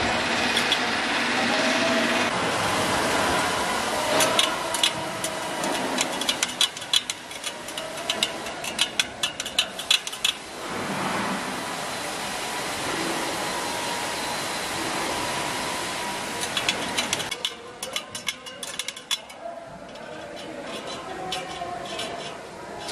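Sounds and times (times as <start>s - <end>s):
metal clicks of wheel: 4.2s - 10.4s, 16.4s - 22.9s.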